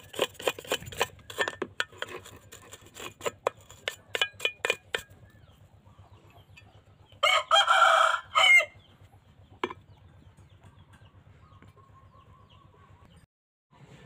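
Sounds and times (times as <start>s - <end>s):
rooster crowing: 7.2s - 8.8s.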